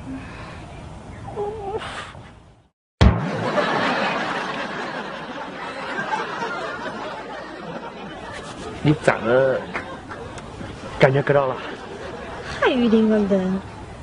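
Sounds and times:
canned audience laughter: 3.2s - 12.5s.

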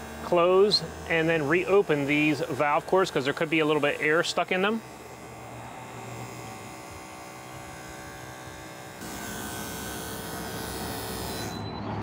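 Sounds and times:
vacuum pump motor running: 0.0s - 11.5s.

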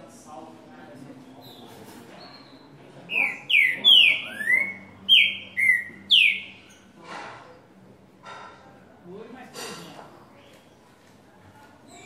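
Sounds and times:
bird whistling song: 2.2s - 6.8s.

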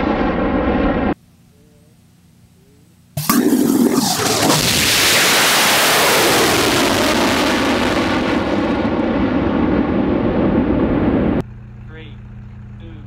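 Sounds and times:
rocket engine ignition blast: 0.0s - 1.2s, 3.2s - 11.4s
rocket exhaust roaring: 0.0s - 1.2s, 3.2s - 12.2s.

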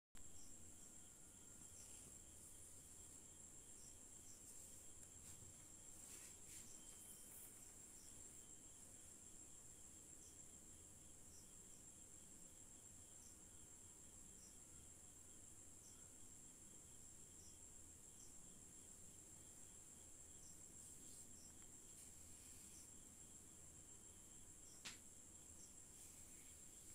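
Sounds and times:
short insect chirps: 0.2s - 12.3s, 16.8s - 26.9s
high-pitched insect drone: 6.0s - 26.9s.

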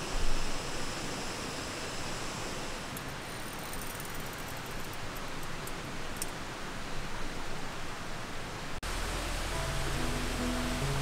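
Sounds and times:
steady rushing noise: 8.5s - 11.0s.

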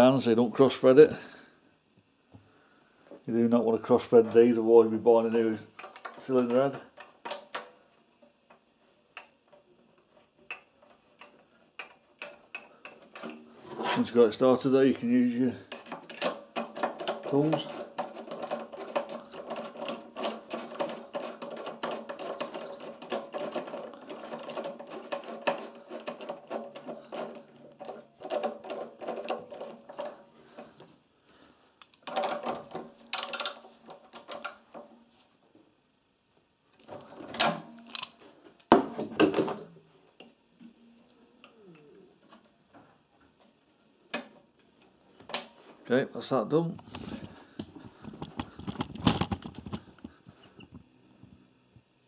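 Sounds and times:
rapid metallic clicking and rubbing: 15.7s - 30.2s, 48.0s - 50.2s.

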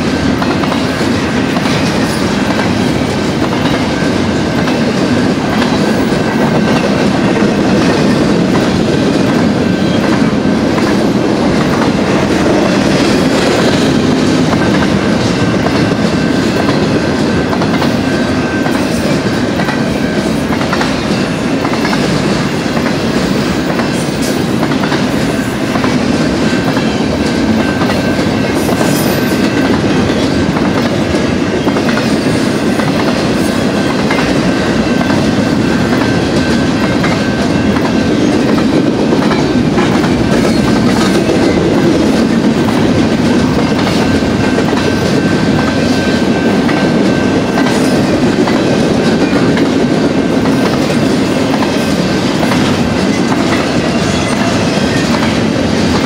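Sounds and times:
freight train wheels clattering: 0.0s - 56.0s.

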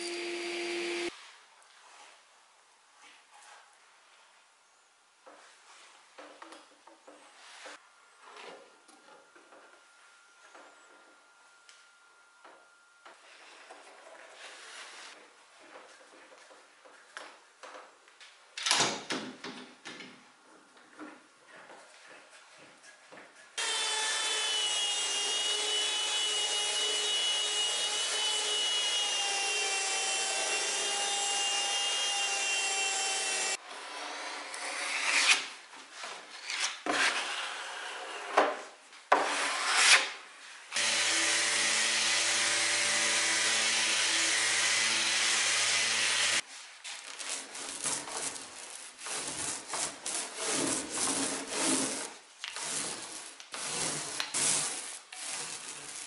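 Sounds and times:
brush strokes on wood: 46.4s - 56.0s.

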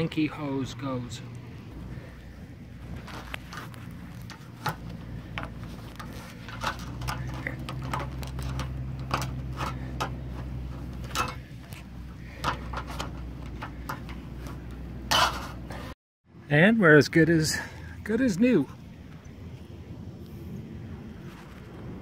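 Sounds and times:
plastic parts clicking and scraping: 2.9s - 15.9s.

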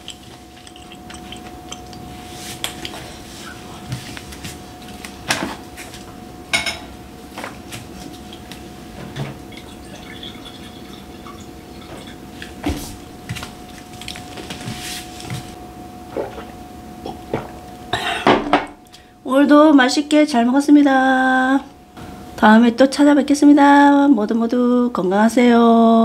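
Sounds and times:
dishes and glass clinking: 0.0s - 4.0s, 6.5s - 7.5s, 16.1s - 18.9s
faint hum: 0.0s - 26.0s.

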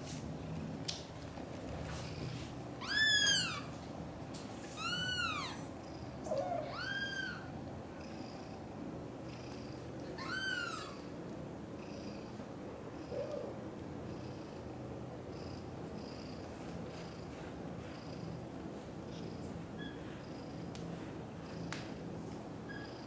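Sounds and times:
kitten meowing: 2.8s - 3.7s, 6.3s - 7.5s
low steady purr: 5.0s - 23.0s.

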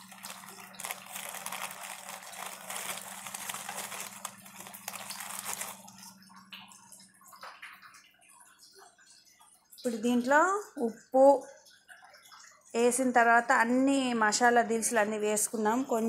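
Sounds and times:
plastic packet crinkling: 0.0s - 6.2s
faint steady hum: 0.0s - 11.8s.

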